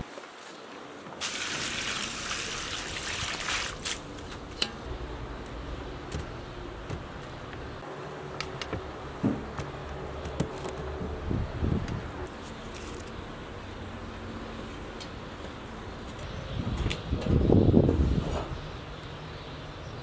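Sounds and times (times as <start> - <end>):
water splashing onto ground: 1.2 - 4.5.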